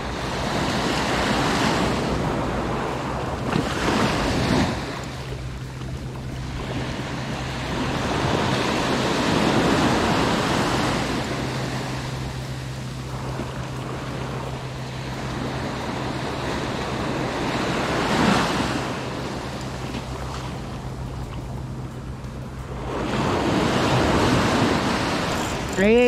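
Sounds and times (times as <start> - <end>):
small waves breaking on beach: 0.0 - 26.0.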